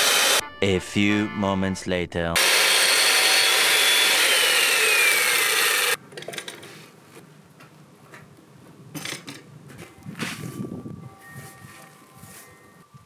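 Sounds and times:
chain mortiser whining: 0.0s - 0.4s, 2.4s - 6.0s
tool scraping: 2.4s - 7.0s.

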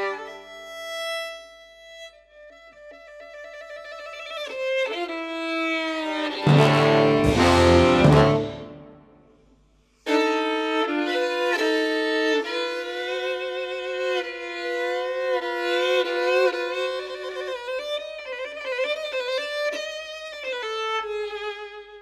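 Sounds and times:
violin melody: 0.0s - 9.1s, 10.0s - 22.0s
ensemble chord with deep low notes: 6.4s - 9.2s
sustained accompaniment: 6.4s - 9.2s.

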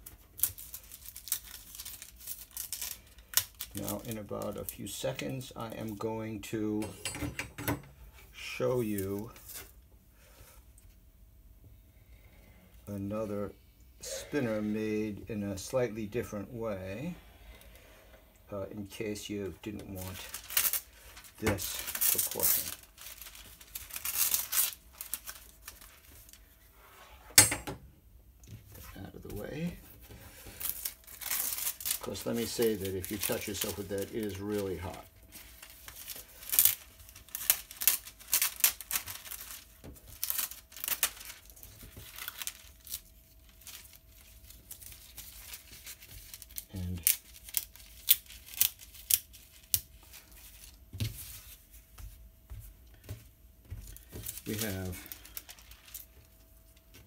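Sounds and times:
fabric crackling and snapping: 19.8s - 26.4s, 30.6s - 50.7s, 53.9s - 57.0s.

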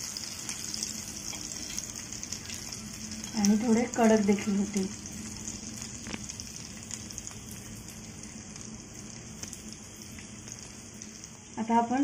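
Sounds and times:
oil sizzling on a griddle: 0.0s - 12.0s
faint crackles: 5.6s - 11.5s.

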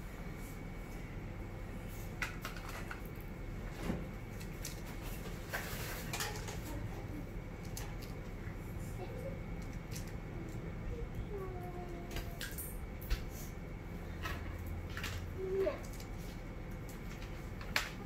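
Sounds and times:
low steady hum: 0.0s - 18.0s
plastic toys clicking and knocking: 9.6s - 10.6s.

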